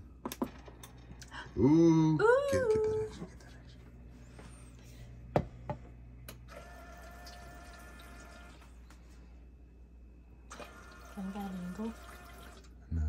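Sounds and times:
ice maker humming: 5.3s - 9.4s, 10.4s - 13.0s
water trickling and dripping: 10.6s - 12.7s.

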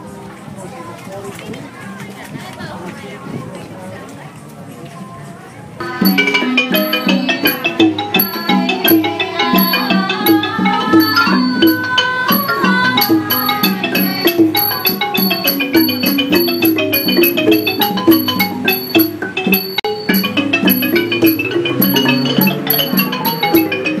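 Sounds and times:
fast xylophone melody: 5.8s - 24.0s.

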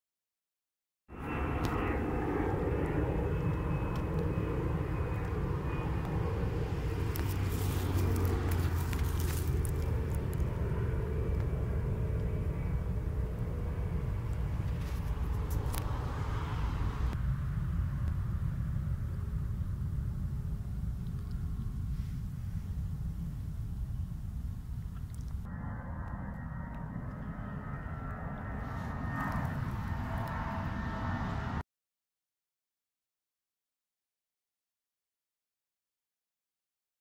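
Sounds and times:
low outdoor rumble: 1.2s - 31.6s
light crackles: 7.0s - 10.6s.

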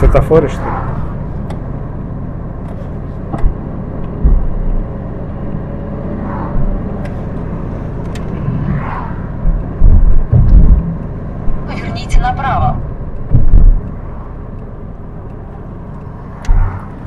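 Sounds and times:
car engine and road noise: 0.0s - 17.0s
dull low thumps: 3.2s - 5.1s, 8.4s - 11.7s, 12.7s - 14.8s, 16.4s - 17.0s.

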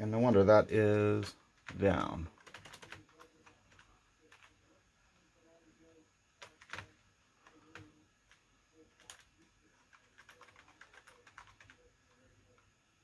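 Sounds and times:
computer keyboard typing: 1.6s - 4.6s, 6.4s - 12.6s.

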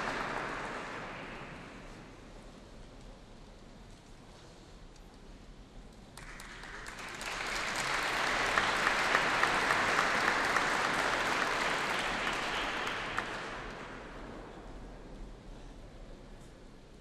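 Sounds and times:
audience applauding: 0.0s - 1.6s, 6.2s - 14.2s.

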